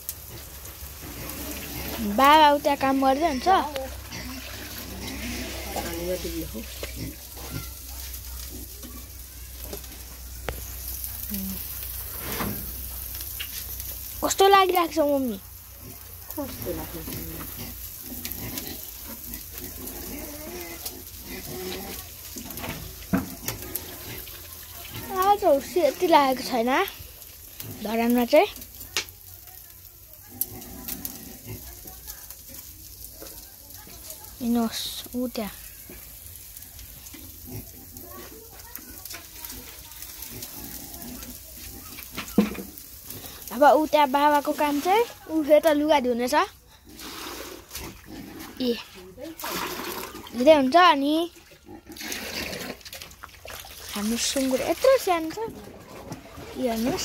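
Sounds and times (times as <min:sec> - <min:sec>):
meat sizzling in a pan: 0:00.0 - 0:57.0
pig grunting: 0:03.2 - 0:07.8, 0:15.8 - 0:22.7, 0:30.3 - 0:31.8, 0:40.2 - 0:42.1, 0:46.8 - 0:50.3, 0:51.5 - 0:52.9.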